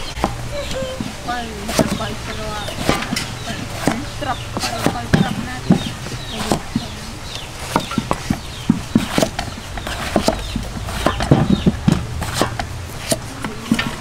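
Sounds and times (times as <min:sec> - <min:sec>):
chickens clucking: 0:00.0 - 0:14.0
knife chopping on wooden board: 0:07.7 - 0:14.0.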